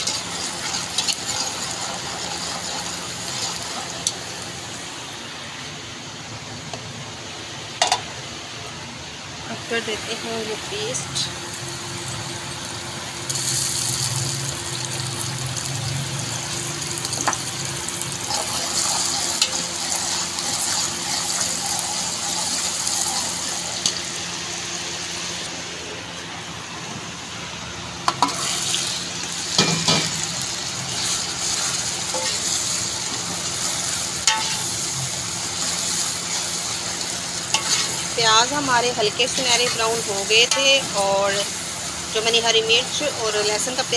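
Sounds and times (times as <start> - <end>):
food sizzling in hot oil: 0.0 - 5.6, 9.4 - 26.2, 27.3 - 43.9.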